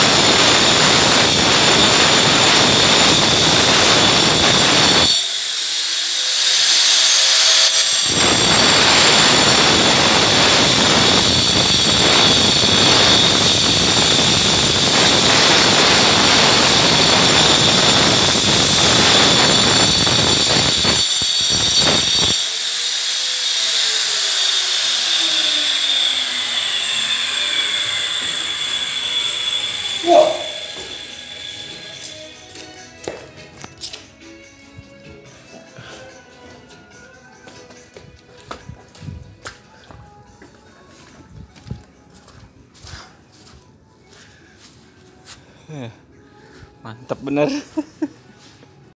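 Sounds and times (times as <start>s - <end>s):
angle grinder cutting masonry: 0.0s - 33.2s.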